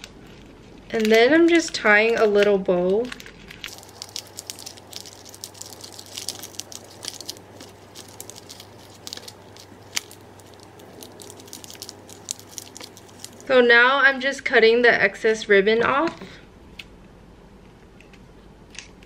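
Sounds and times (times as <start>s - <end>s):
plastic wrap crinkling: 0.0s - 13.6s.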